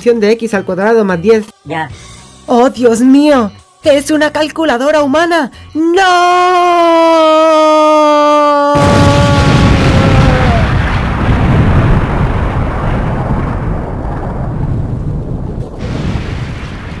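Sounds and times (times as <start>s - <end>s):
rumbling explosion blast: 8.8s - 17.0s.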